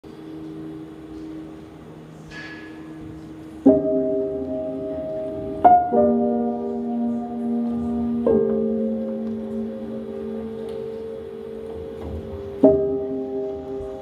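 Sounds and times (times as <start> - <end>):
soft slow music: 0.0 - 14.0.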